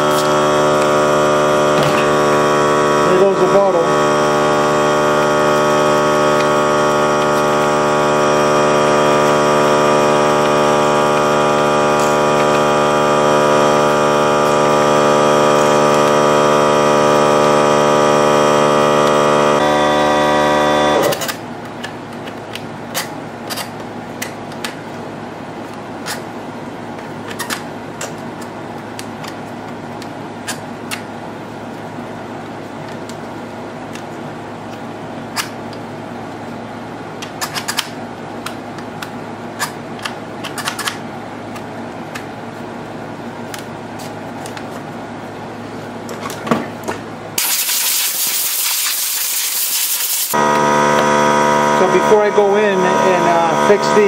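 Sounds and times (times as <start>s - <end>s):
air compressor motor droning: 0.0s - 22.1s, 47.4s - 54.0s.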